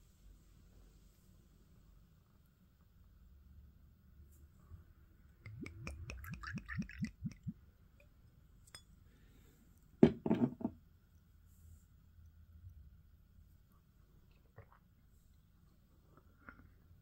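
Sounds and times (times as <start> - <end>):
liquor glugging from bottle: 5.5 - 7.6
bottle set down on table: 10.0 - 10.8.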